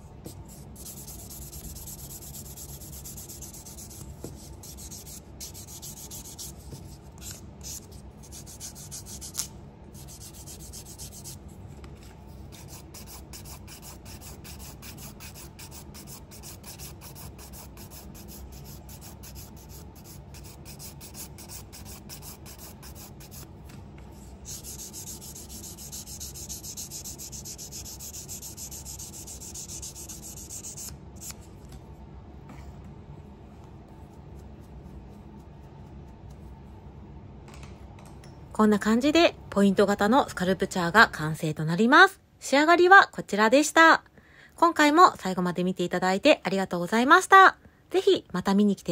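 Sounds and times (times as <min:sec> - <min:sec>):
nail file rasping: 0:12.6 - 0:23.5, 0:24.5 - 0:31.4.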